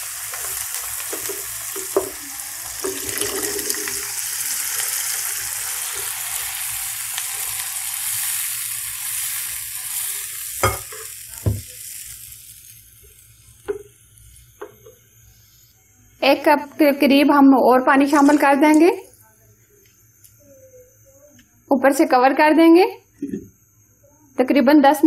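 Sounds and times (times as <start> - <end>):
masala sizzling in hot oil: 0.0 - 17.2, 17.9 - 19.1.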